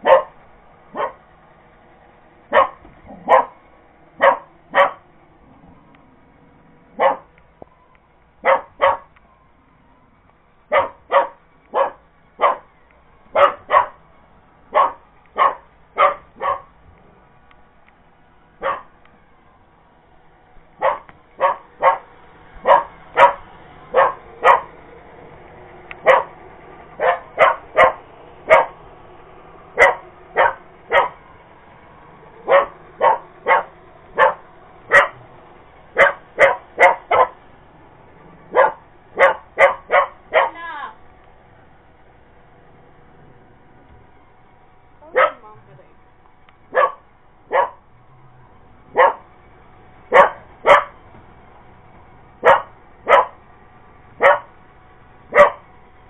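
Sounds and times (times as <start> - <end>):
puppy barking: 0.0 - 1.2, 2.5 - 3.6, 4.2 - 5.1, 6.9 - 7.4, 8.4 - 9.2, 10.7 - 12.7, 13.3 - 14.0, 14.7 - 16.8, 18.6 - 19.0, 20.8 - 24.8, 26.0 - 26.4, 27.0 - 28.8, 29.8 - 31.2, 32.4 - 35.2, 35.9 - 37.4, 38.4 - 40.8, 45.0 - 45.6, 46.7 - 47.8, 48.9 - 49.3, 50.1 - 51.0, 52.4 - 53.4, 54.2 - 54.5, 55.3 - 55.7.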